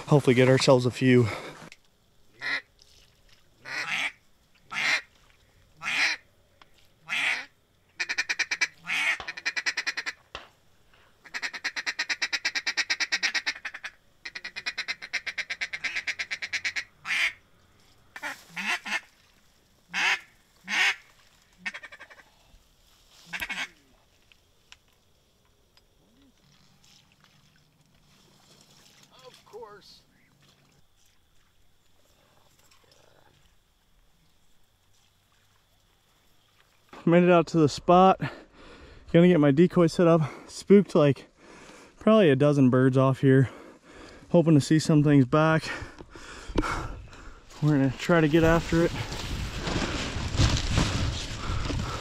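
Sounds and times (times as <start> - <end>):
duck quacking: 2.4 - 2.6, 3.6 - 5.1, 5.8 - 6.2, 7.0 - 10.2, 11.2 - 17.4, 18.2 - 19.1, 19.9 - 21.0, 21.6 - 22.3, 23.3 - 23.8.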